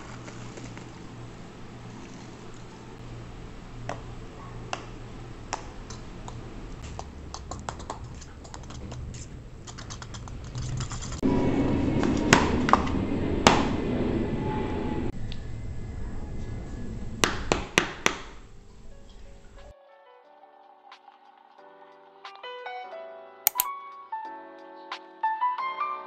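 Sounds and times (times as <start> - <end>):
airplane flying overhead: 8.2 - 19.7.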